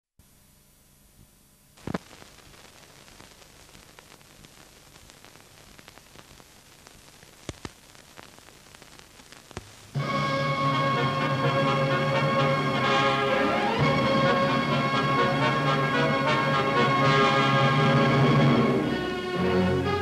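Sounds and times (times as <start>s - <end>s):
film soundtrack hiss: 0.2s - 20.0s
clicks and pops: 1.8s - 9.9s.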